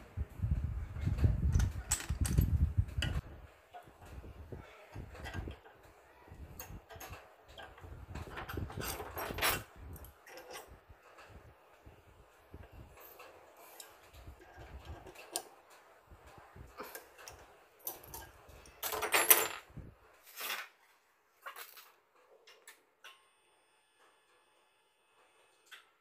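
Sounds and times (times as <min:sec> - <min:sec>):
metal clatter: 0:01.5 - 0:03.2
small metal parts clicking: 0:01.5 - 0:03.2, 0:16.8 - 0:19.6.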